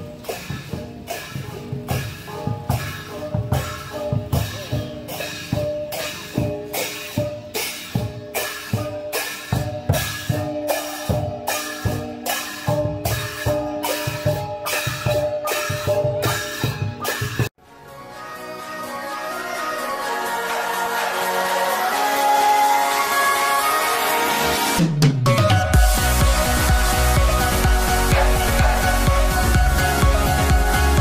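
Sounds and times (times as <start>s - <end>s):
cymbals struck together: 0.0s - 17.5s
hanging gongs ringing: 0.0s - 17.5s, 25.6s - 31.0s
large drum beating: 24.9s - 31.0s.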